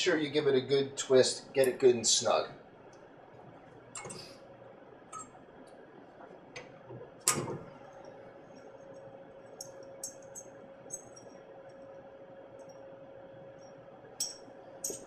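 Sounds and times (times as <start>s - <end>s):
hand tool and metal fittings clinking: 9.6s - 11.3s, 14.2s - 15.0s.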